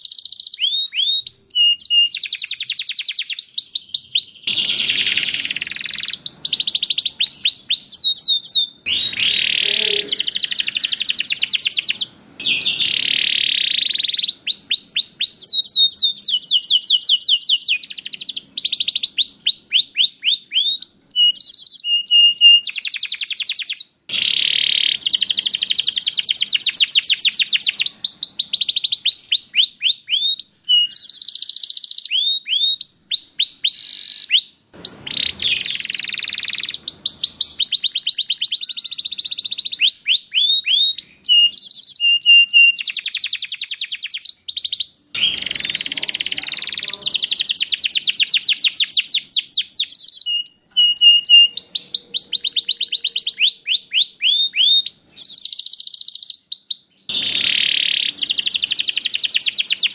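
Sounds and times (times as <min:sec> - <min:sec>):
canary singing trills: 0:00.0 - 0:59.9.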